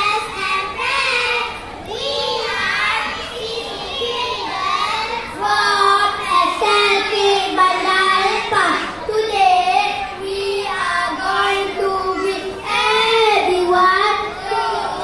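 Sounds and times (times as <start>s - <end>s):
children singing together: 0.0s - 15.0s.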